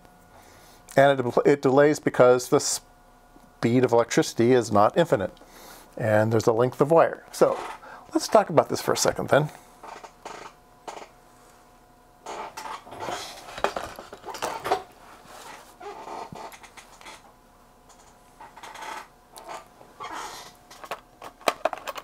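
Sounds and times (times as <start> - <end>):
objects clattering on workbench: 12.3 - 15.6.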